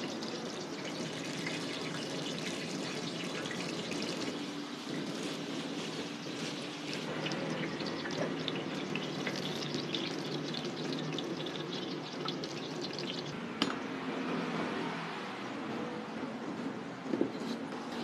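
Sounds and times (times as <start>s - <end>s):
hot oil sizzling and crackling: 0.0s - 13.4s.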